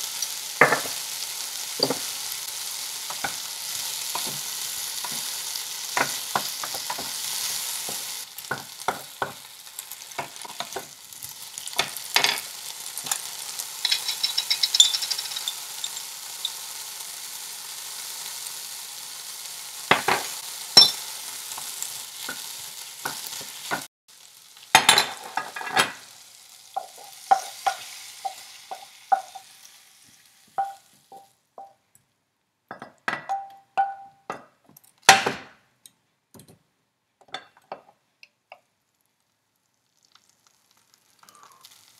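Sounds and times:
okra sizzling in a frying pan: 0:00.0 - 0:31.8, 0:37.4 - 0:41.9
spatula scraping a pan: 0:03.1 - 0:09.4, 0:26.8 - 0:29.6.

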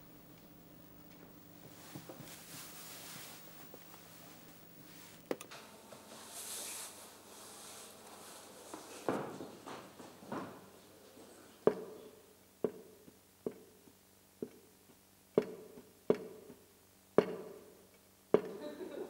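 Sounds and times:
sharp knocks ringing in a hall: 0:17.2 - 0:18.6.

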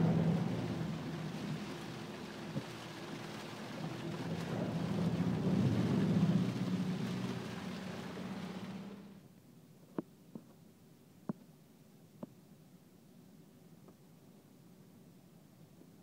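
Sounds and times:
water and rain washing against car: 0:00.0 - 0:09.2
car engine pulling through water: 0:00.0 - 0:09.3.

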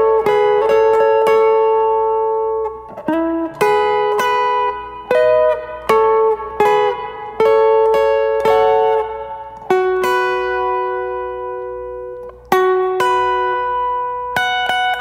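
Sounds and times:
clean electric guitar picking: 0:00.0 - 0:15.0.

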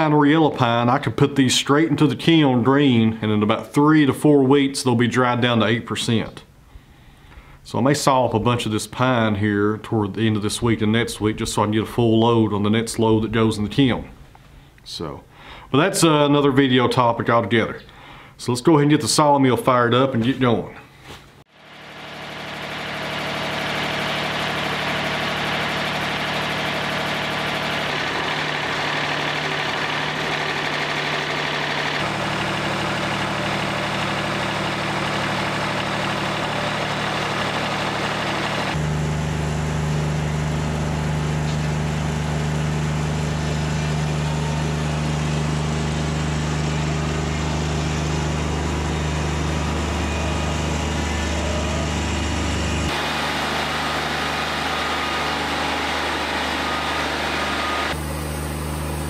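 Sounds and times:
diesel engine running: 0:21.5 - 0:59.0.

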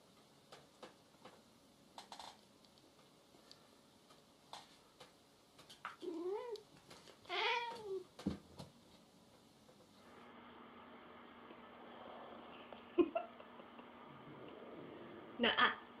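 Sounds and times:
cat meowing: 0:07.3 - 0:08.0.

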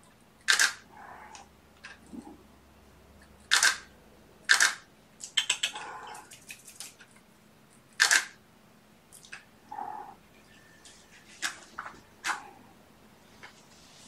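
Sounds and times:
camera shutter clack: 0:00.5 - 0:00.8, 0:03.5 - 0:03.8, 0:04.5 - 0:04.8, 0:08.0 - 0:08.4.

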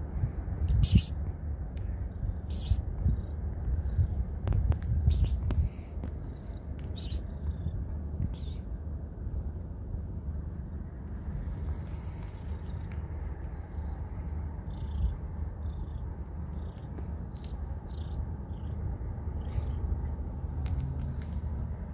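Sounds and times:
cat purring: 0:05.6 - 0:09.5, 0:10.1 - 0:21.5.

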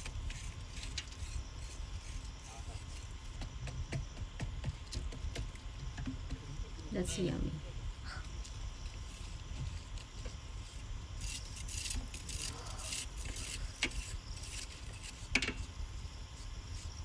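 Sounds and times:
sharp knocks: 0:03.4 - 0:06.5.

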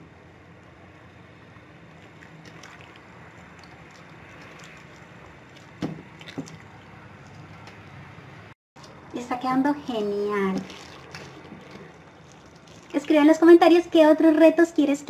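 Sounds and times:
wet slime squelching: 0:01.8 - 0:08.2, 0:09.9 - 0:14.0.

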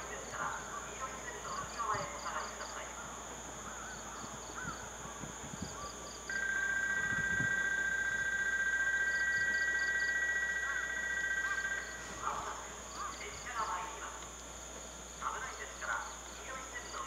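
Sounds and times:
insects trilling: 0:00.0 - 0:17.0
two-tone electronic warning tone: 0:06.3 - 0:12.8.

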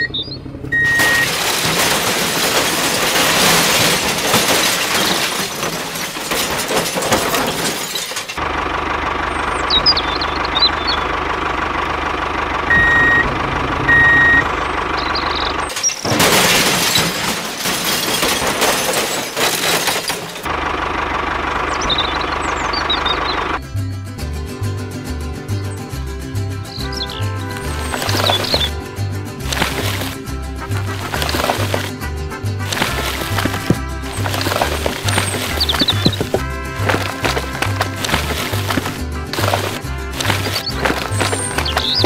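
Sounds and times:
faint bird chirps: 0:00.0 - 0:00.9, 0:09.4 - 0:11.1, 0:15.0 - 0:15.6, 0:21.7 - 0:23.4
short beeps: 0:00.0 - 0:01.3, 0:12.7 - 0:13.3, 0:13.9 - 0:15.4
engine running: 0:00.0 - 0:42.0
grit sliding and rattling: 0:27.6 - 0:28.8, 0:29.4 - 0:32.0, 0:32.6 - 0:42.0.

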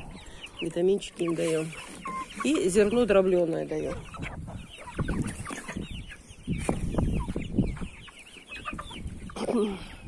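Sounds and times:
young chickens clucking: 0:00.0 - 0:10.0.

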